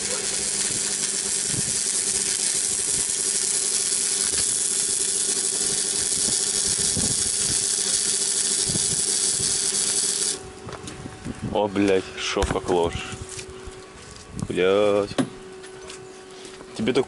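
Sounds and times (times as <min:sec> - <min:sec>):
arc welding crackling hiss: 0:00.0 - 0:10.5.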